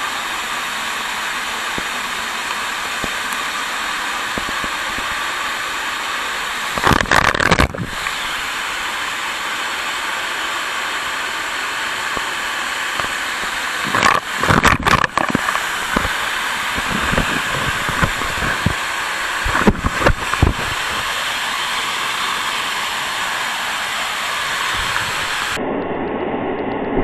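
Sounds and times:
waterfall rushing: 0.0 - 25.6.

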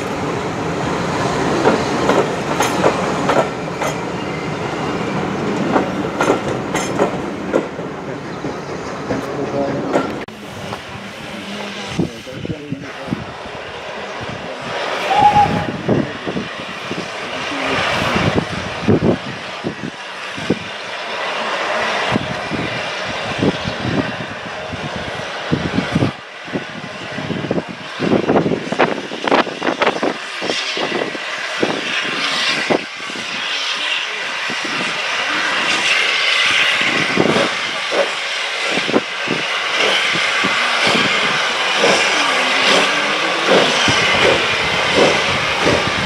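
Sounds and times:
steam train rushing: 0.0 - 46.0.

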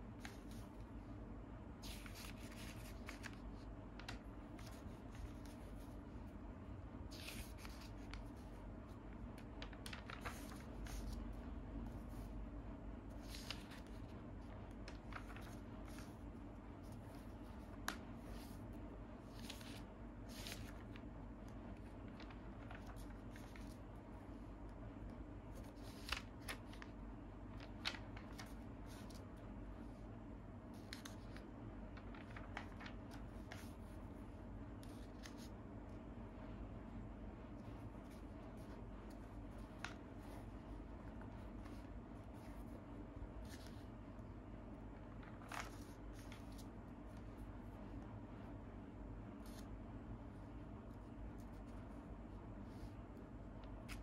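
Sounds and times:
faint steady hum: 0.0 - 54.0
magazine pages turning: 0.2 - 0.8, 1.8 - 6.0, 7.0 - 12.3, 13.1 - 24.4, 25.5 - 29.3, 30.7 - 34.0, 34.8 - 35.5, 37.5 - 44.1, 45.0 - 47.5.

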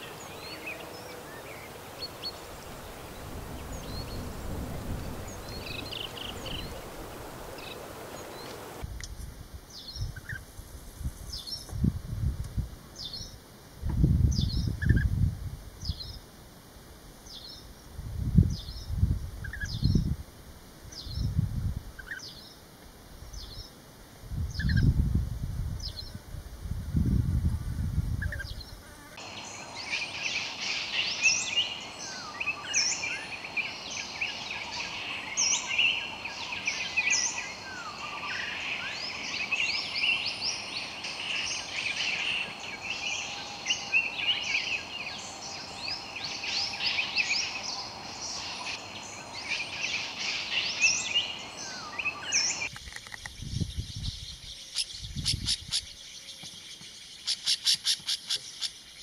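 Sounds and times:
small birds chirping: 0.0 - 8.8, 28.2 - 59.0
outdoor hiss: 0.0 - 55.1.

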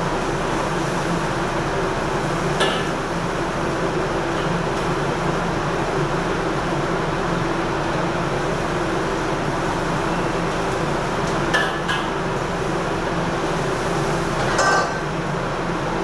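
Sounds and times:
gas burner and fan roaring: 0.0 - 16.0
metal cookware clinks: 14.5 - 15.0.

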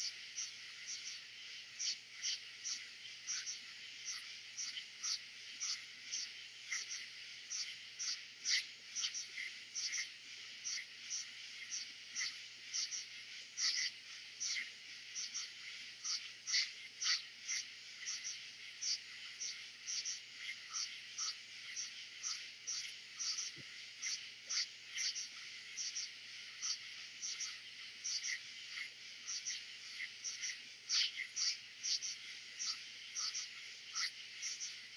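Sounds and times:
katydids and crickets chorus: 0.0 - 34.9
loud insect pulses: 0.0 - 34.9.

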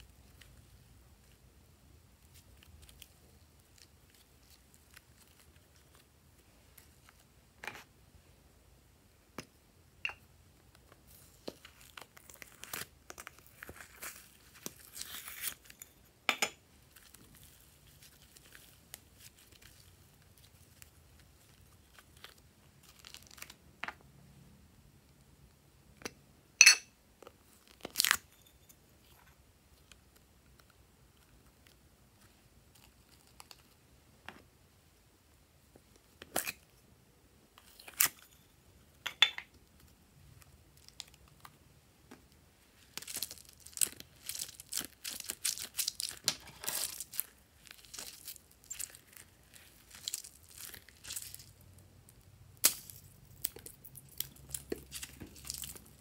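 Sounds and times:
squishy ball crackling and squishing: 10.6 - 15.9, 16.7 - 23.6, 39.7 - 56.0.

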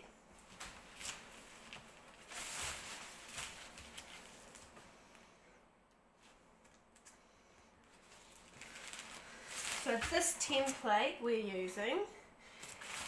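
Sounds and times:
kite fabric rustling: 0.4 - 4.8.

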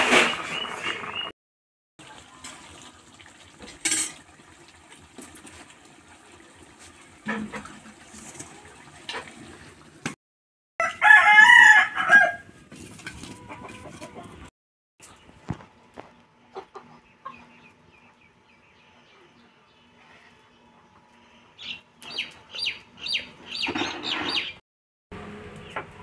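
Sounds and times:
rooster crowing: 10.8 - 12.5.

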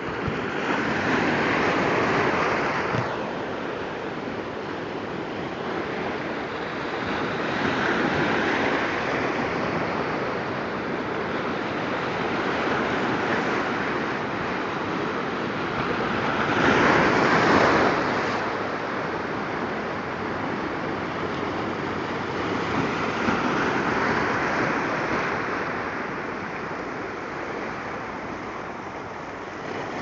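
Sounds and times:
waves washing over rock: 5.3 - 30.0.

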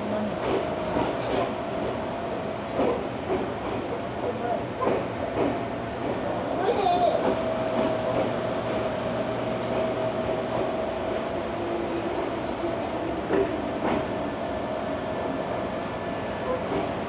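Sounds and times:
train car rumble: 0.0 - 17.0
electric train whine: 7.1 - 17.0.

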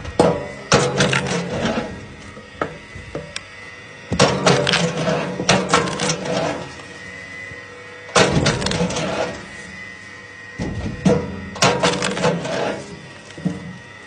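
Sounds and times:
faint steady hum: 0.0 - 14.0
wood cracking as log splits: 8.2 - 9.0, 10.6 - 12.3
wood halves clattering on steel: 10.6 - 12.5.

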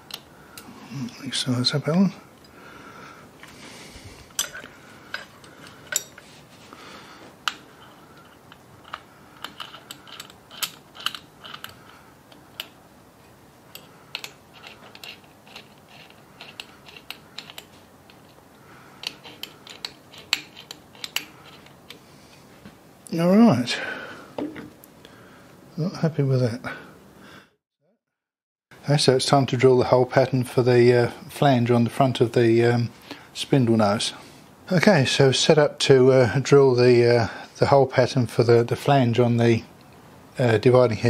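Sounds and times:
metallic clicks of tools: 4.3 - 6.2, 7.4 - 12.8, 13.7 - 18.4, 19.0 - 22.0.

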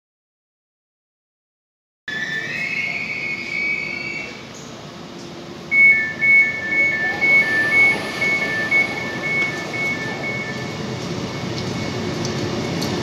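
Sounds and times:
high whistling tone: 2.1 - 4.5, 5.7 - 12.0
approaching train rumble: 2.1 - 13.0
two-note electronic beeping: 5.7 - 11.5.

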